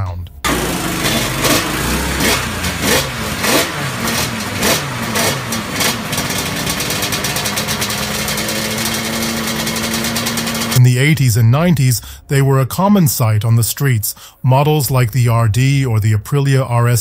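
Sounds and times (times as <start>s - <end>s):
two-stroke race bike engine revving: 0.4s - 10.8s.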